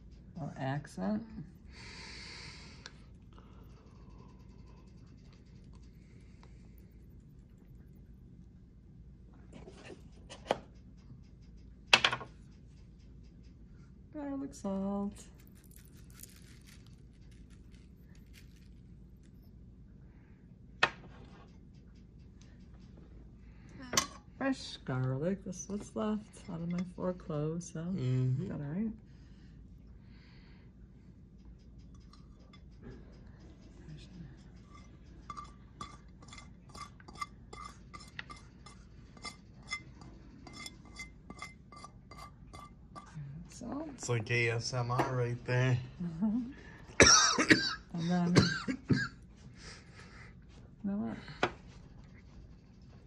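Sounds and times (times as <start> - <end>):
seasoning shaker ticking: 10.1 - 13.9, 15.2 - 19.5, 31.2 - 39.8.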